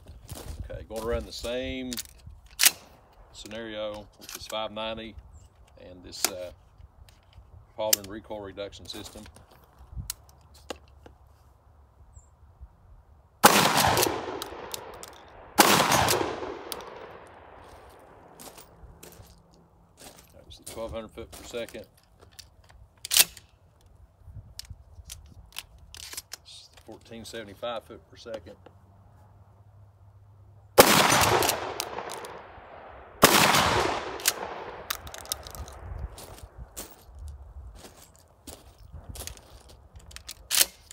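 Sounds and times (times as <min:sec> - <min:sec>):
shotgun blasts with echo: 0:13.4 - 0:18.2, 0:30.8 - 0:34.9
shotgun pump action: 0:33.2 - 0:35.8, 0:40.1 - 0:40.9.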